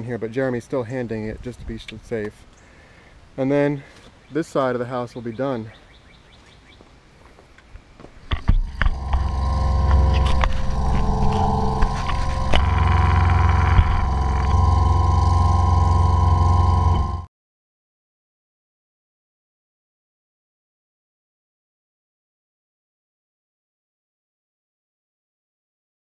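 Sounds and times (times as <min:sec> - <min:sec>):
diesel engine running: 0:08.6 - 0:17.3.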